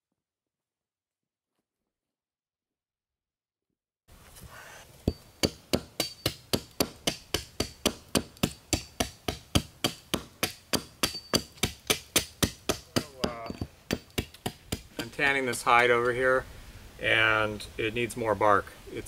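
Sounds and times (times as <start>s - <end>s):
hatchet chopping bark on wood block: 5.1s - 15.2s.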